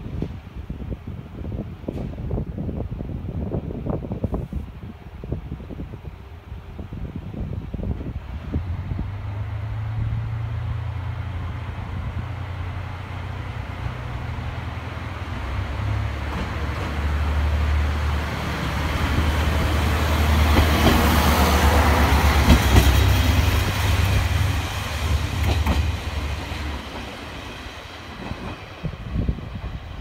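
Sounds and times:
wheel and rail noise: 7.8s - 30.0s.

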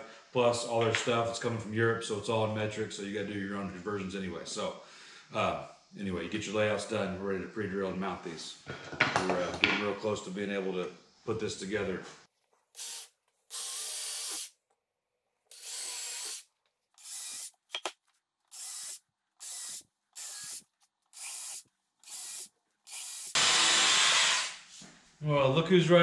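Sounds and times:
cordless drill drilling into wood: 12.8s - 14.5s, 15.5s - 16.4s, 17.0s - 17.6s, 18.5s - 20.6s, 21.2s - 24.6s.

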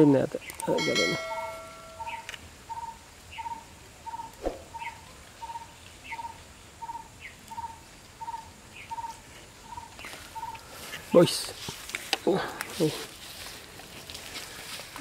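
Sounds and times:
higher falling chirp: 0.6s - 5.6s.

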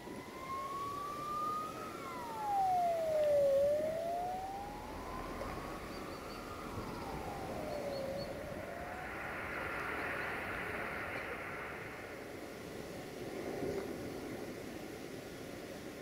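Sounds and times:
wailing siren: 0.0s - 10.1s.

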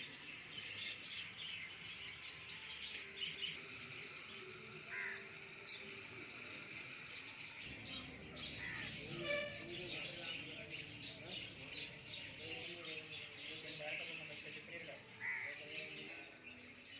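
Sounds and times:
small birds chirping: 0.0s - 16.9s
steady high hiss: 2.8s - 9.3s.

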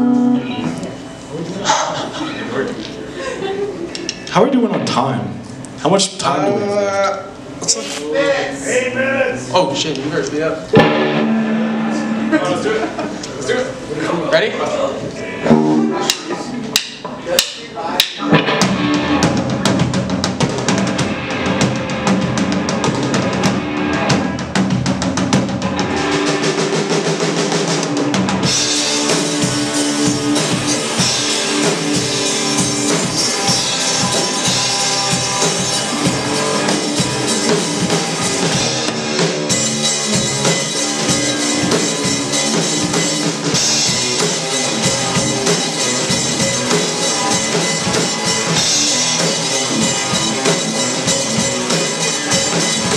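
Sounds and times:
electric guitars: 0.0s - 5.8s, 8.2s - 14.0s, 14.7s - 17.2s, 18.0s - 52.9s
drum kit: 4.3s - 6.5s, 9.6s - 13.9s, 15.2s - 52.9s
cymbals: 10.7s - 13.1s, 16.8s - 52.9s.

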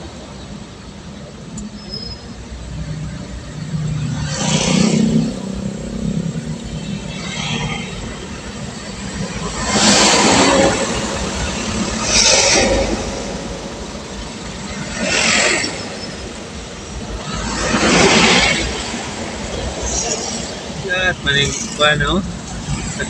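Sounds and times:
vehicles passing by: 0.0s - 23.0s.

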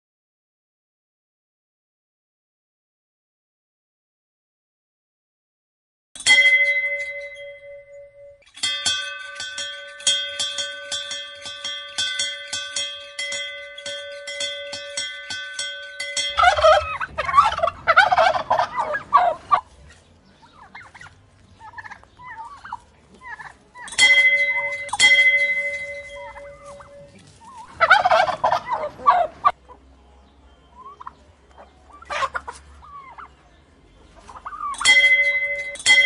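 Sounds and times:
dinner bell ringing: 6.2s - 19.4s, 23.9s - 28.9s, 34.7s - 36.0s
turkeys gobbling: 14.0s - 29.8s, 30.7s - 35.6s.

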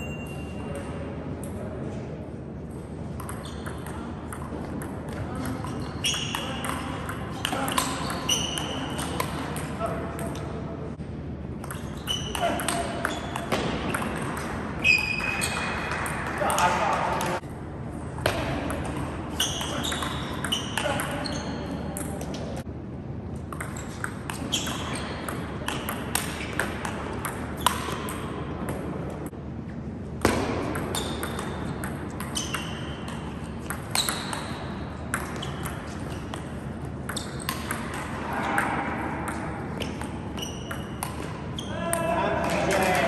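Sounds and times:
table tennis ball hits: 3.1s - 10.5s, 11.6s - 17.4s, 23.4s - 28.9s, 30.2s - 43.0s
ball bouncing on table: 3.2s - 10.5s, 11.6s - 17.4s, 23.5s - 28.8s, 30.2s - 43.0s.

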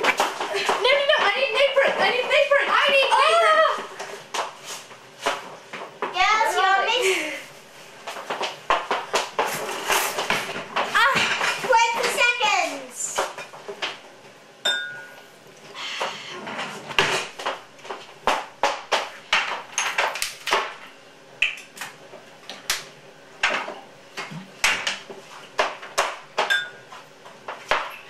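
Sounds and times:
short glassy ring: 14.7s - 15.2s.

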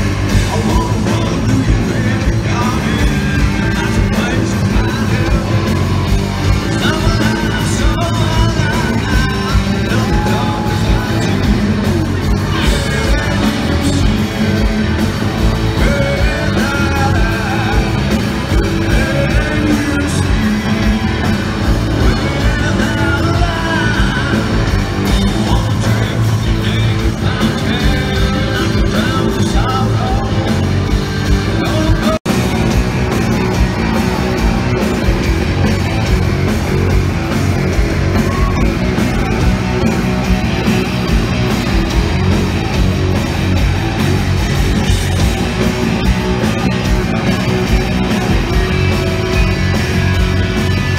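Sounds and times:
live rock band playing: 0.0s - 50.9s
person singing: 0.3s - 32.7s.

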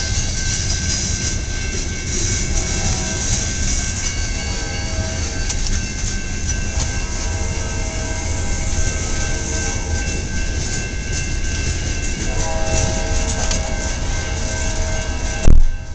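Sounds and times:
high-pitched tones: 0.0s - 15.9s
train wheels rumbling on rails: 0.0s - 15.9s.

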